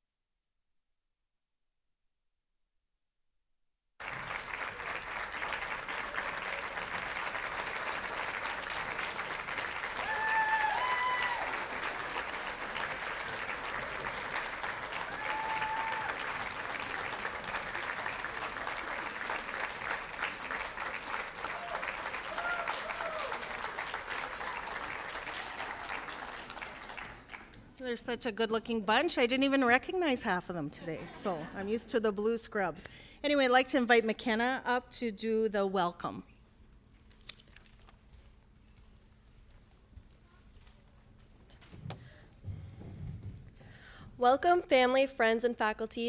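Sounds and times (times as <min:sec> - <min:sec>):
audience applauding: 0:04.0 - 0:27.7
cheering whoops: 0:09.9 - 0:11.9, 0:15.0 - 0:16.4, 0:21.4 - 0:26.2.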